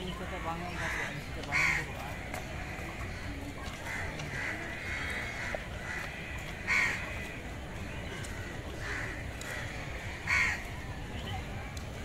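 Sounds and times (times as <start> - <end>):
crows cawing: 0.4 - 7.4, 8.3 - 10.6.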